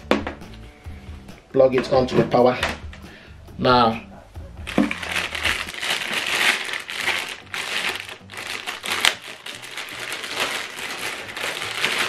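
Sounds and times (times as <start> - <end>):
plastic bag crinkling: 4.7 - 12.0.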